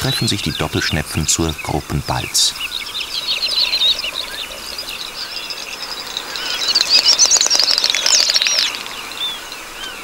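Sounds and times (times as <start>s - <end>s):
high twittering bird chirps: 0.0s - 10.0s
rapid bird clicks: 6.1s - 9.0s.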